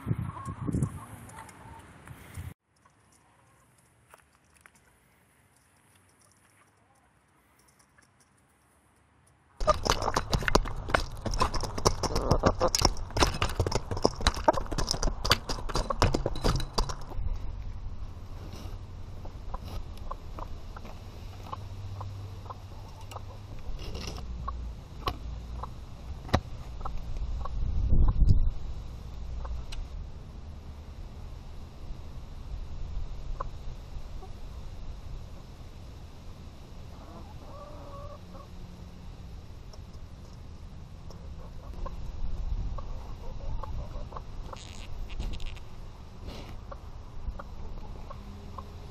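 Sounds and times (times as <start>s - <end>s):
chickens pecking at camera: 9.6s - 17.3s
steady low rumble: 9.6s - 37.2s
hens clucking softly: 19.2s - 23.7s, 36.9s - 38.5s, 41.0s - 42.0s, 42.7s - 44.8s, 46.5s - 48.7s.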